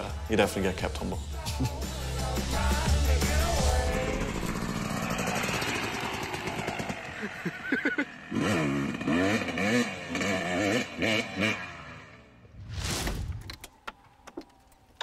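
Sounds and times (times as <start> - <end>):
motorbike engine revving: 2.4 - 12.5.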